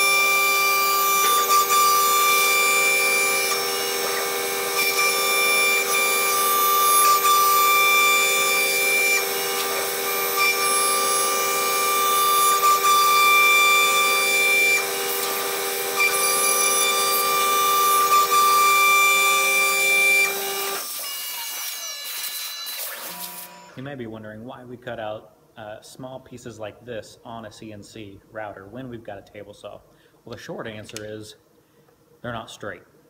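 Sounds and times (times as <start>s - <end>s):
router spindle whine: 0.0s - 23.8s.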